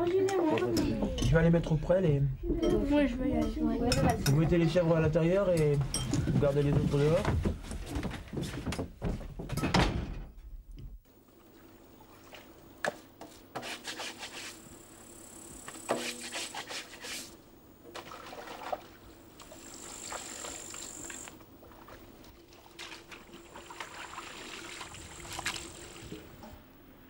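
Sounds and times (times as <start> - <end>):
trickling water: 17.9 - 26.4.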